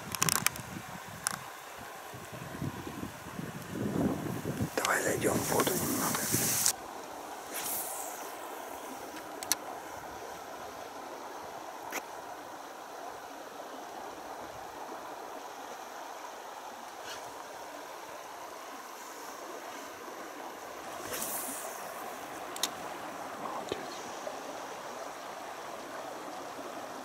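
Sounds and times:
river water rushing: 4.0 - 27.0
faint clicks: 9.1 - 9.7, 22.3 - 22.8.

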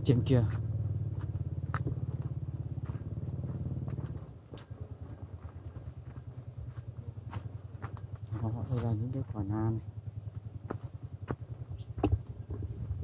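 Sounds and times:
small engine pulsing: 9.4 - 13.0.

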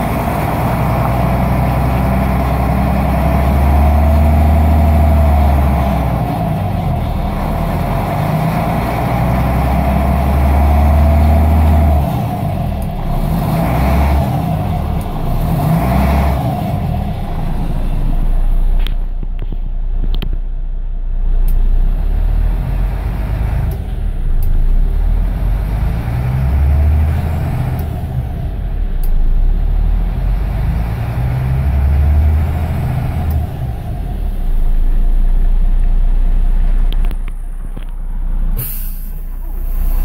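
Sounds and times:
diesel bus engine revving: 0.0 - 19.2, 21.1 - 40.0
compressed air hiss: 38.6 - 40.0.

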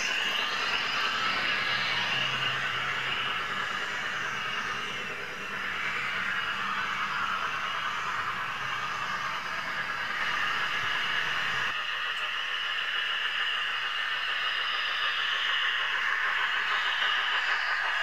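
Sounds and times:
model train wheels rolling on track: 0.0 - 18.0.

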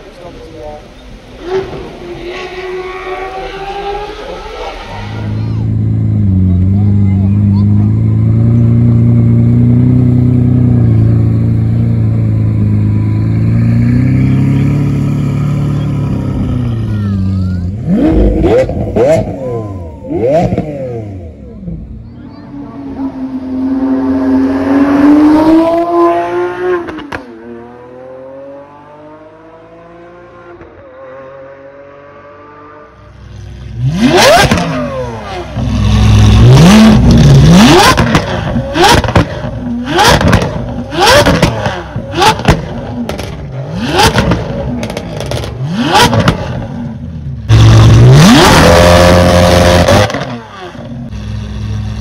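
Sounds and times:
sports car accelerating hard: 17.7 - 52.0
car engine revving with pops: 25.2 - 27.3, 33.8 - 52.0.

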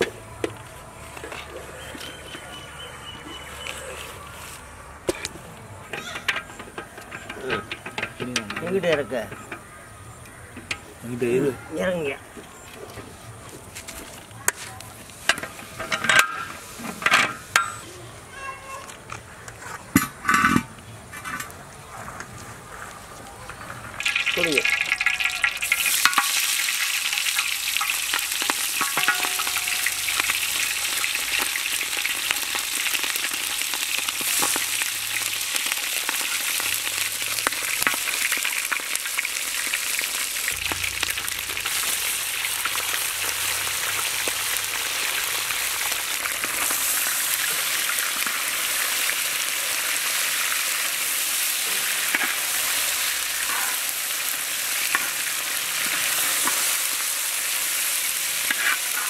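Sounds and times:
meat sizzling in oil: 23.9 - 59.0.

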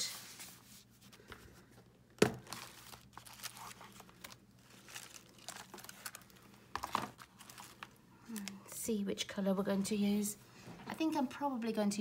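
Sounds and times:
paper card rustling: 2.4 - 8.6.

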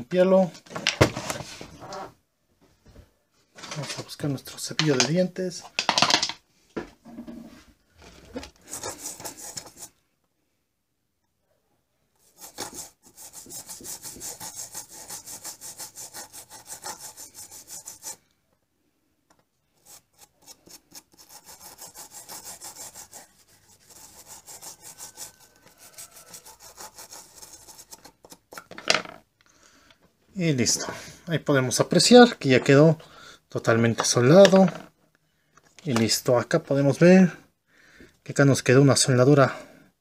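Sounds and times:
toothbrush scrubbing circuit board: 8.6 - 9.9, 12.2 - 18.2, 19.8 - 28.5.

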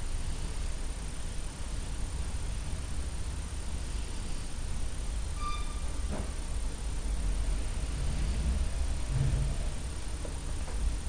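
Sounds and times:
low rumble: 7.0 - 11.0.

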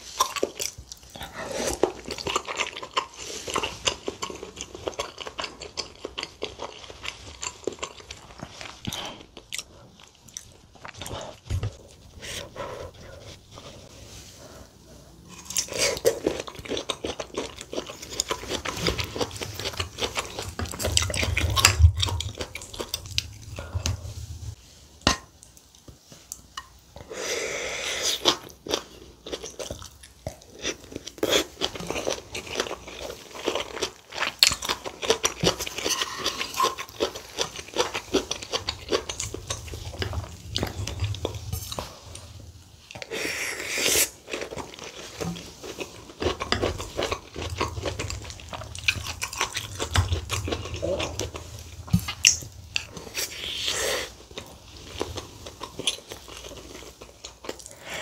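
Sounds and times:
chewing and lip smacking: 0.1 - 12.5, 44.0 - 58.0
slurping broth: 35.4 - 48.9, 51.1 - 58.0.

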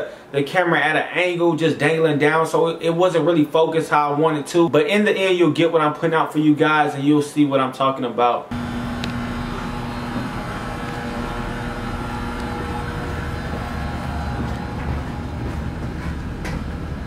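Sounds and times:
ship machinery rumble: 8.5 - 17.0
steady hum tone: 8.5 - 17.0.

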